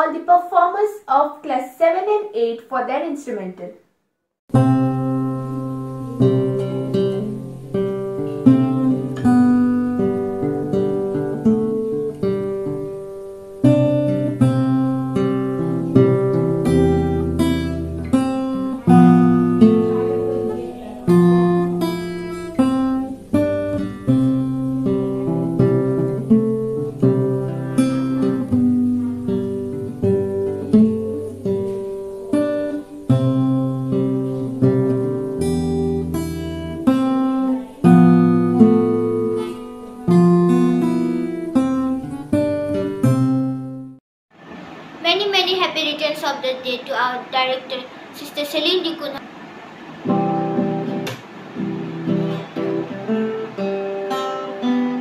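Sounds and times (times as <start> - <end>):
acoustic guitar playing: 4.5 - 55.0.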